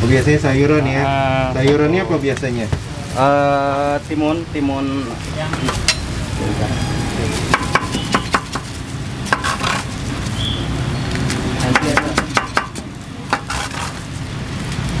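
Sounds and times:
utensil knocking on griddle: 7.5 - 9.9, 11.6 - 14.0.

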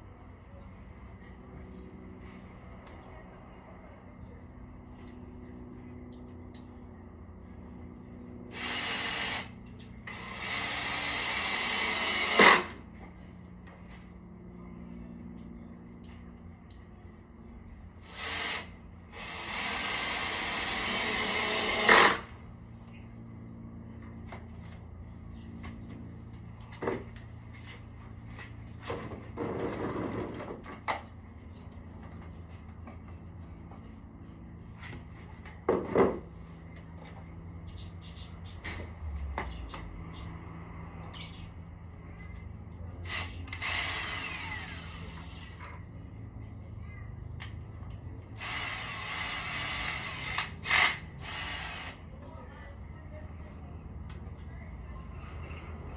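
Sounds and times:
power tool running: 8.5 - 12.9, 18.0 - 22.5, 43.0 - 45.6, 48.4 - 52.0.

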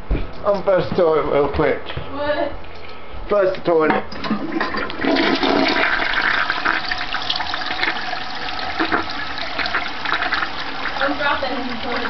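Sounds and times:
toilet flushing: 4.1 - 12.0.

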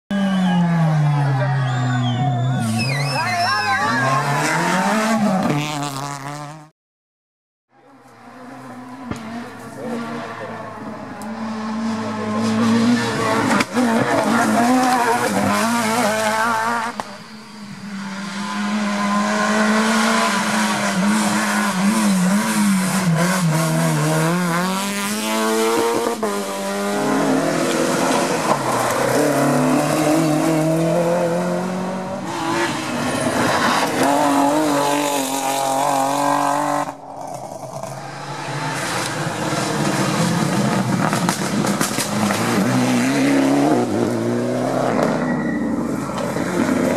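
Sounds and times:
rally car engines revving: 0.2 - 6.7, 7.8 - 46.9
tyre squeal: 1.5 - 4.4, 44.9 - 46.6.

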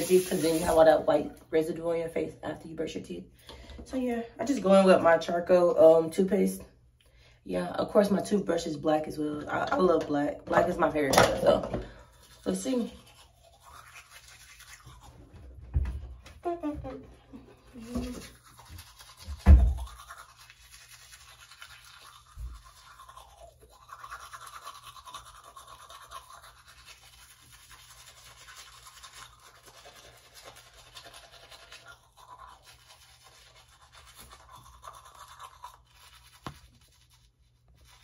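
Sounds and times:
toothbrush scrubbing teeth: 0.0 - 1.2, 9.2 - 38.0.

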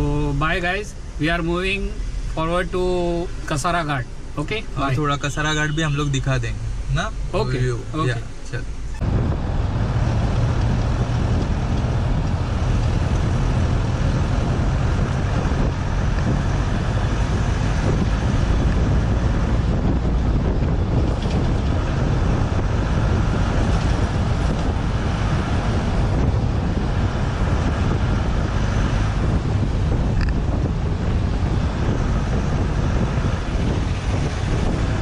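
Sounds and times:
car road noise: 0.0 - 35.0
wind rumble on microphone: 6.4 - 35.0.

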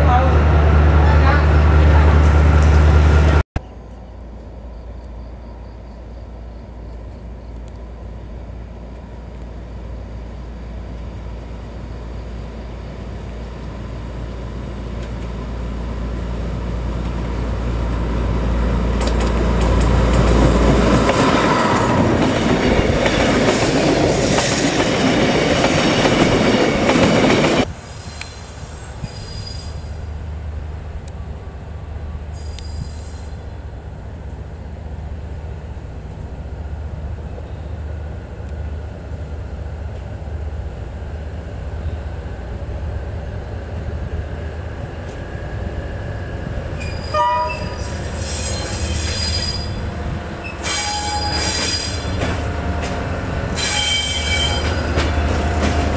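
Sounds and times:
diesel locomotive engine running: 0.0 - 3.4, 29.9 - 55.9
low rumble of diesel locomotive: 0.0 - 55.9
high wheel squeal: 27.9 - 30.1, 32.3 - 33.5, 46.8 - 52.3, 53.5 - 55.3.

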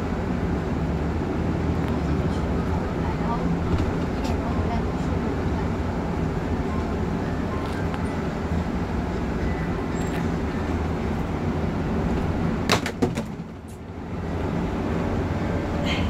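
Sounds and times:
bus engine and tyres droning: 0.0 - 16.0
sharp knocks and rattles: 12.2 - 13.8.

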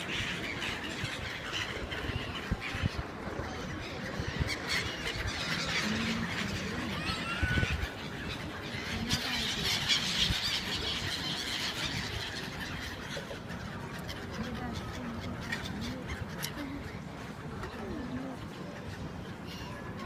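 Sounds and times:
gulls calling: 0.0 - 20.0.

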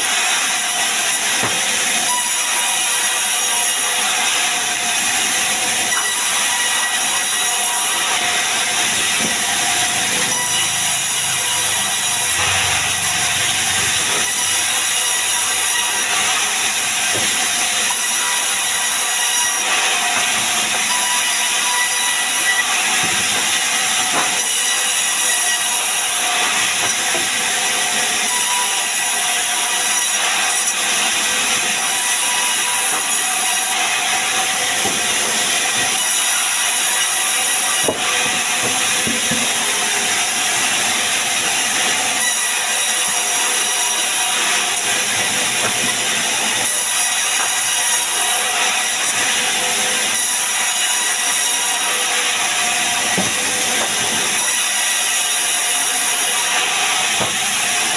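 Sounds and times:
band saw blade whining: 0.0 - 57.9
timber knocking on saw table: 17.0 - 17.4, 37.8 - 39.5, 53.1 - 54.6, 57.1 - 57.4.

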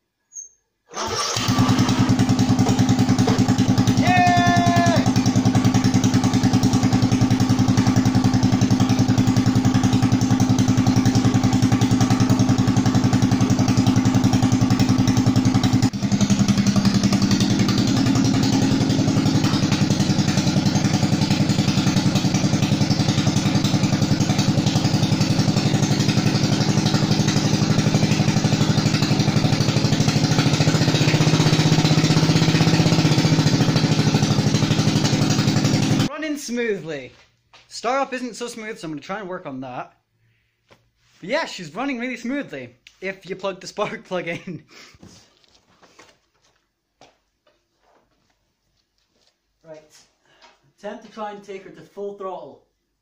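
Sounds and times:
mower engine running: 0.9 - 36.1.

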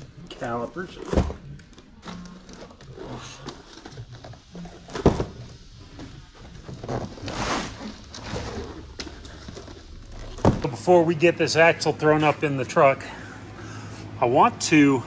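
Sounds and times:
boxed part knocking down: 10.3 - 10.8.

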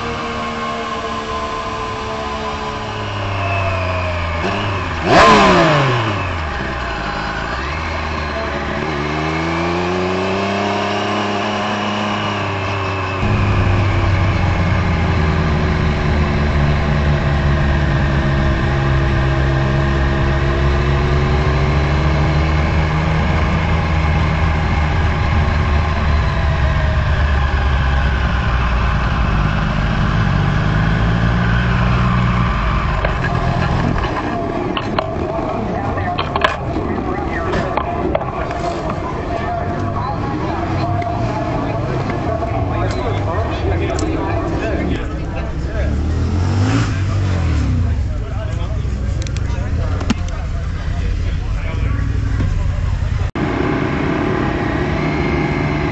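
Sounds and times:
motorcycle engine revving: 0.0 - 55.9
steady motorcycle engine rumble: 0.0 - 55.9
motorcycle passing by: 37.1 - 48.8.

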